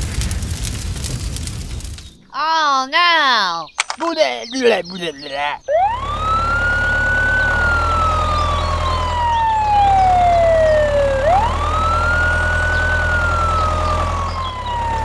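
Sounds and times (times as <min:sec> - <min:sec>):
ambulance siren wailing: 0:04.5 - 0:15.0
low engine rumble: 0:04.6 - 0:15.0.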